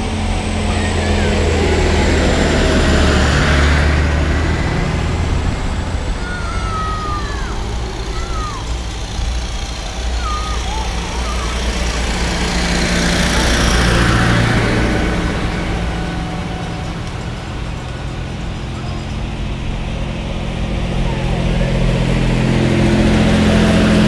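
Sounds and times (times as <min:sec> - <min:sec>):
diesel tractor engines passing: 0:00.0 - 0:24.0
bird chirps: 0:06.2 - 0:14.3.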